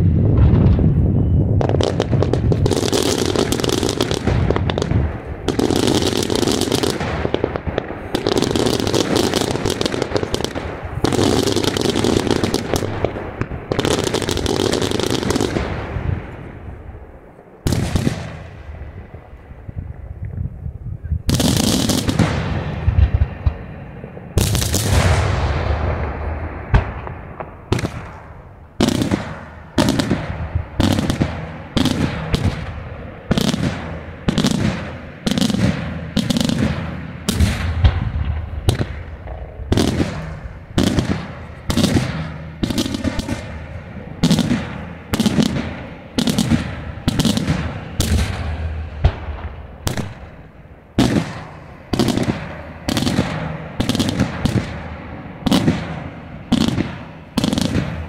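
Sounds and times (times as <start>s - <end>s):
fireworks bursting: 0.0s - 19.5s, 21.3s - 58.0s.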